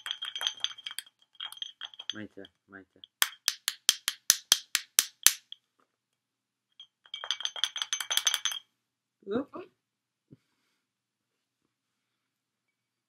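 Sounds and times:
glass bottle clinking when tapped: 0:00.0 - 0:02.3, 0:03.0 - 0:05.6, 0:07.1 - 0:08.6.

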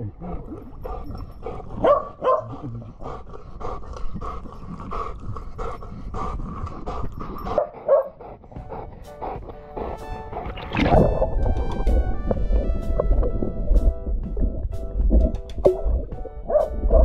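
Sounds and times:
dog barking: 0:01.8 - 0:02.6, 0:07.6 - 0:08.2, 0:16.5 - 0:17.0.

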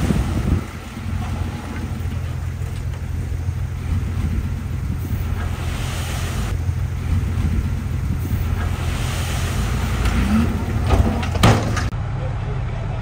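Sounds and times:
soil pouring from truck bed: 0:00.0 - 0:11.9
diesel truck engine rumbling: 0:00.0 - 0:13.0.

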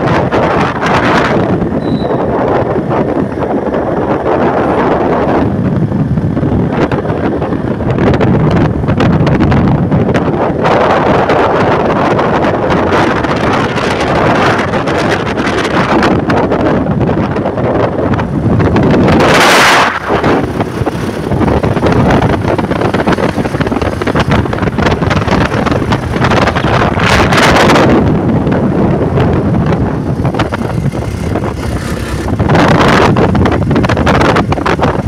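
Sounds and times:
wind rushing over microphone: 0:00.0 - 0:35.0
motorcycle engine running: 0:16.8 - 0:35.0.

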